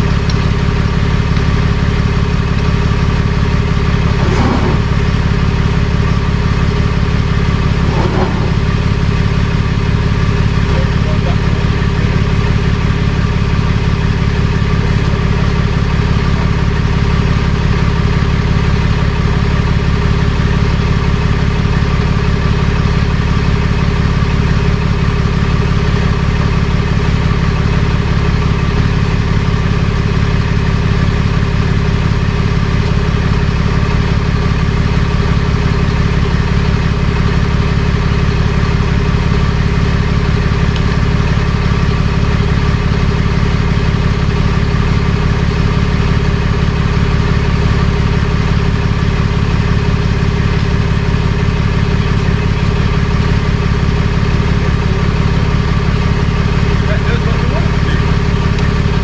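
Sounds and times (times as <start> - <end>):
truck engine idling: 0.0 - 59.0.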